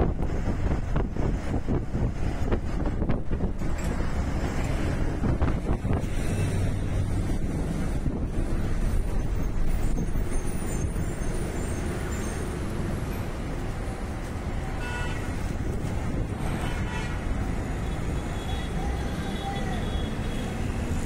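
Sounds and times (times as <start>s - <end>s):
traffic rumble: 0.0s - 21.0s
vehicle horn honking: 14.8s - 15.3s, 16.5s - 17.2s.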